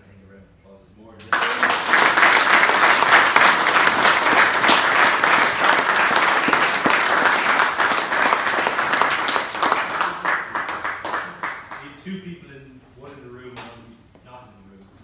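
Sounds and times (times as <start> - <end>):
crowd applauding: 1.2 - 11.9.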